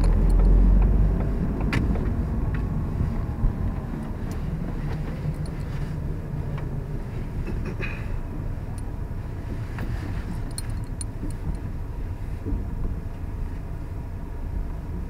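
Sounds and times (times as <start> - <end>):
light clicks and rattles: 0.0 - 2.7, 3.7 - 6.8, 9.6 - 11.7
car cabin road rumble: 0.0 - 15.0.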